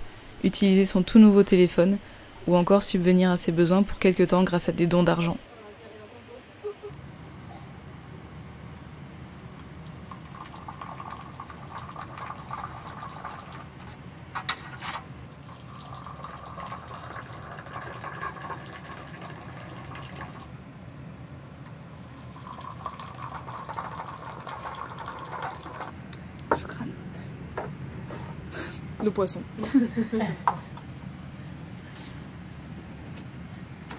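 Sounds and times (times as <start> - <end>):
tea pouring into glass: 9.3 - 13.7, 15.4 - 20.5, 21.9 - 25.9.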